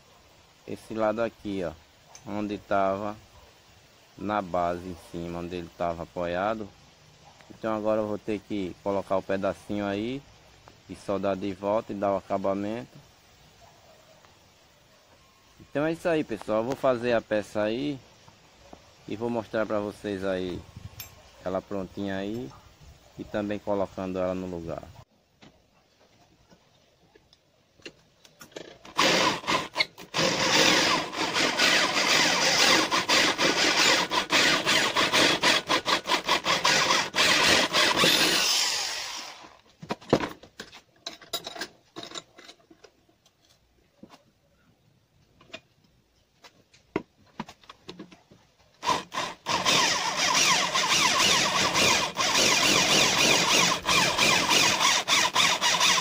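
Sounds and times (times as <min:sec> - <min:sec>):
electric drill boring into metal: 0:29.0 - 0:39.6, 0:48.8 - 0:56.0.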